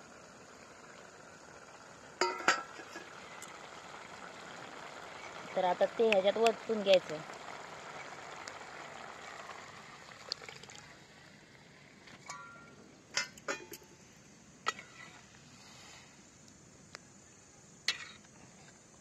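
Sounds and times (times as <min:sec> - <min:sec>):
liquid pouring into a pot: 0:01.7 - 0:05.6, 0:06.6 - 0:11.2.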